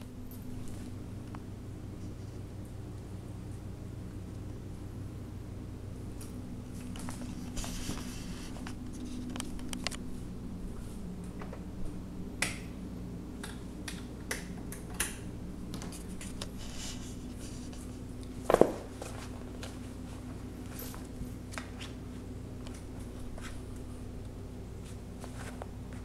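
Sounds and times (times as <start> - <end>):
faint steady hum: 0.0 - 26.0
cardboard scraping and crinkling: 7.0 - 9.8.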